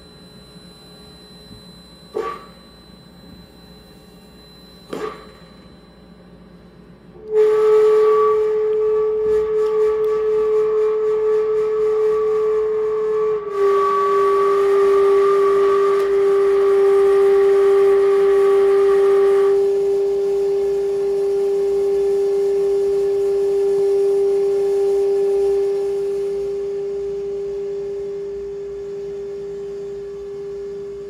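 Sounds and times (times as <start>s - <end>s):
faint higher tone: 0.0s - 9.3s
electronic drone tone: 0.0s - 31.0s.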